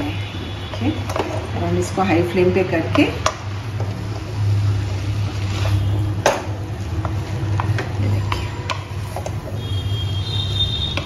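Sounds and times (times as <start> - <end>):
spatula scraping a metal wok: 4.1 - 6.2.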